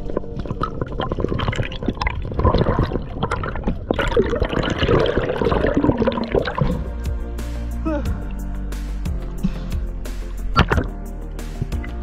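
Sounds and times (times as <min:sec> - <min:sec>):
seawater splashing and gurgling: 0:00.0 - 0:07.3, 0:10.6 - 0:11.0.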